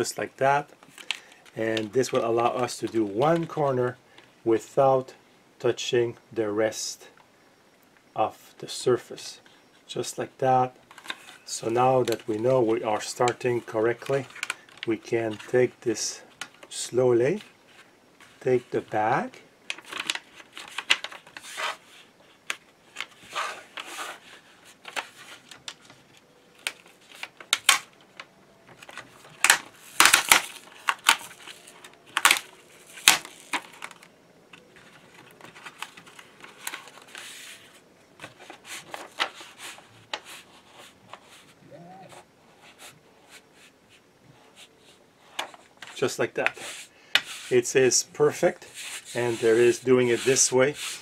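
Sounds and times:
hands rubbing a sheet: 48.4s - 51.0s.

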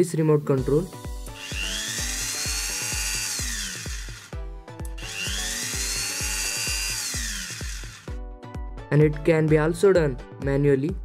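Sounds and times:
background music with steady beat: 0.0s - 11.0s
rotary tool motor whining: 1.2s - 4.4s, 5.0s - 8.2s.

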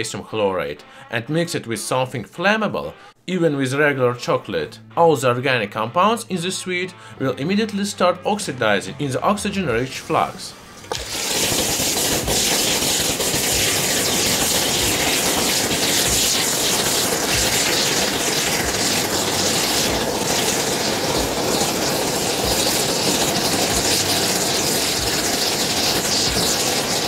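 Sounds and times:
rushing hiss of flame: 9.9s - 27.0s
faint crackles: 10.8s - 27.0s.

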